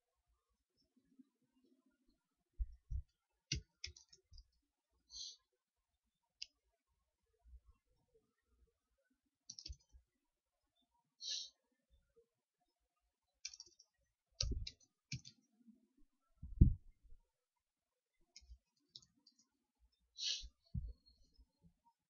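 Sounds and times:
keyboard keys clicking: 0:09.5 - 0:09.9
dull low thumps: 0:16.4 - 0:17.0.

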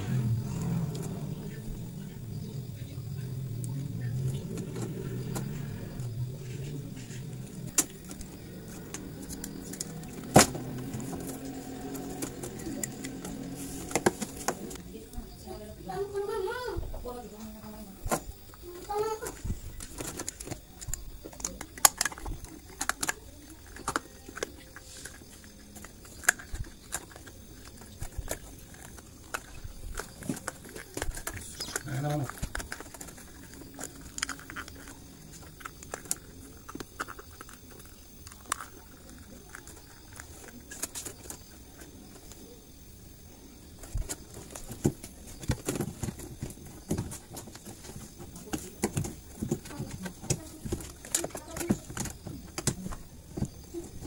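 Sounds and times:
plastic and rubber parts clicking: 0:03.5 - 0:14.8, 0:19.2 - 0:42.4, 0:43.8 - 0:54.0.

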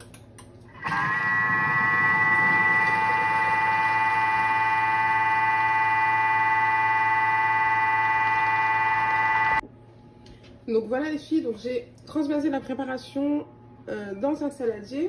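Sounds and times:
kitchen mixer motor whine: 0:00.7 - 0:09.6.

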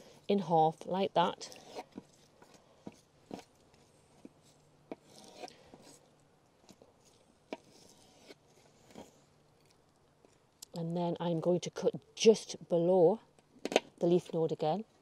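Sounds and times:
knife cutting on wooden board: 0:01.5 - 0:02.2, 0:04.9 - 0:06.0.

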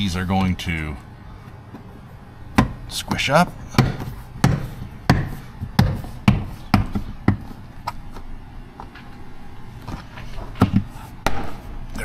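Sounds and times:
knocks on plastic panel: 0:03.8 - 0:07.5.

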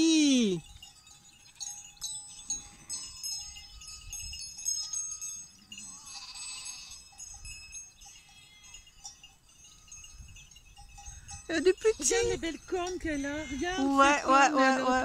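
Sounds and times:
goat bells clinking: 0:00.0 - 0:15.0
goat bleating: 0:05.9 - 0:07.0, 0:13.1 - 0:15.0.

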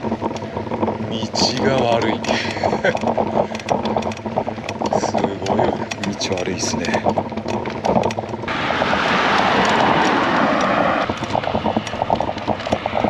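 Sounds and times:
bicycle rattling on rough pavement: 0:00.0 - 0:13.0
loud rushing noise: 0:08.5 - 0:13.0.

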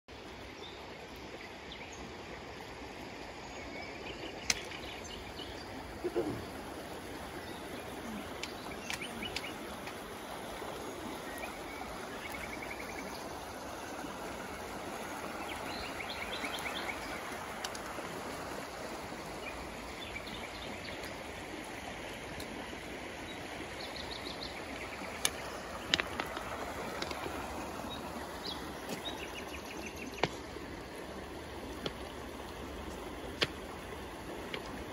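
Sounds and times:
river rushing over gravel: 0:00.2 - 0:34.9
songbirds trilling: 0:03.4 - 0:17.9, 0:23.2 - 0:30.9.

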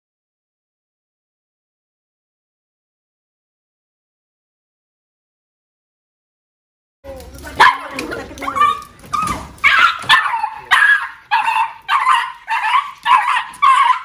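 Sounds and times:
puppy yapping: 0:07.6 - 0:14.0.

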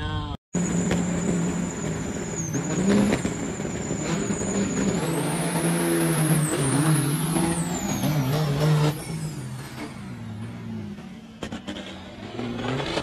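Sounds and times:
diesel truck engines revving: 0:00.0 - 0:13.0
high whistle: 0:00.6 - 0:08.3.

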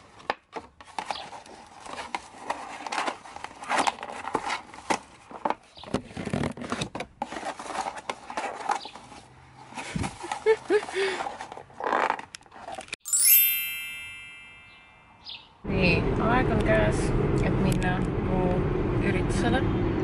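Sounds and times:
paper envelope rustling: 0:00.0 - 0:13.0.

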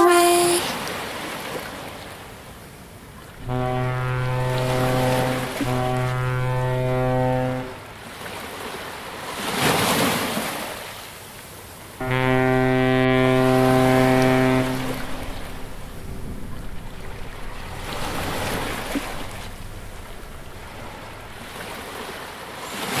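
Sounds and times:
wind: 0:00.0 - 0:23.0
ship's horn blast: 0:03.3 - 0:08.0, 0:12.0 - 0:22.2
surf washing in: 0:03.4 - 0:23.0.

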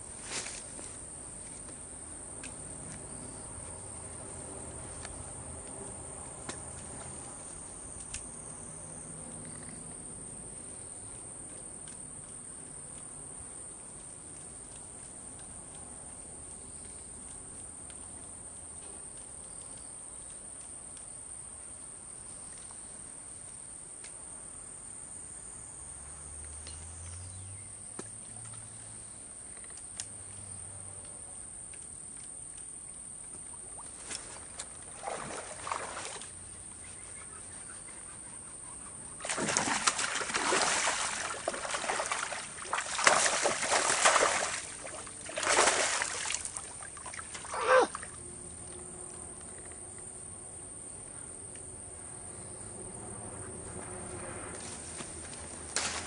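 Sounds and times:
high insect drone: 0:00.0 - 0:56.0
water splashing: 0:33.6 - 0:36.4, 0:39.2 - 0:48.2, 0:55.6 - 0:56.0.

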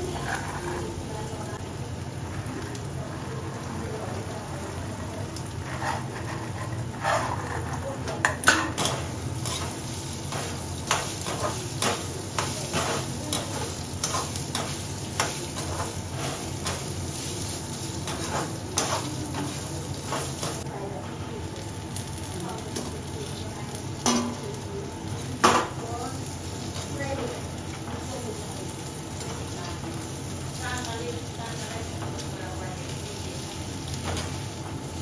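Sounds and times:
peas sizzling in hot oil: 0:00.0 - 0:35.0
metal skimmer scraping pan: 0:05.6 - 0:08.9.

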